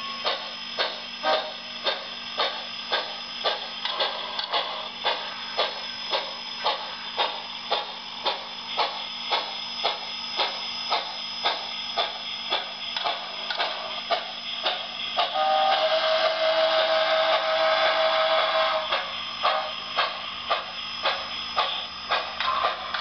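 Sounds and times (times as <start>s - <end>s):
train whistle: 0.0s - 0.4s, 1.2s - 1.6s, 15.2s - 19.9s
model steam exhaust chuffs: 0.0s - 23.0s.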